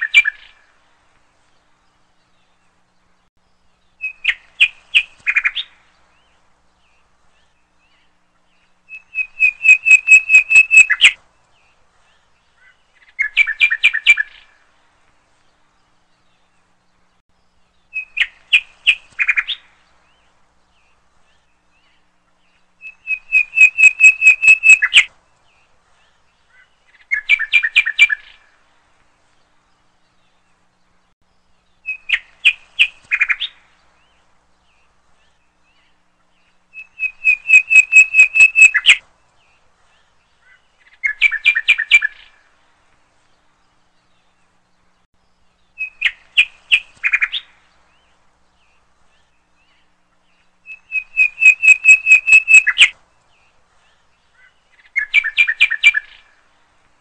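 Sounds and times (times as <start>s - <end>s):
eagle calling high piping notes: 8.9s - 11.2s, 22.8s - 25.1s, 36.7s - 39.0s, 50.7s - 52.9s.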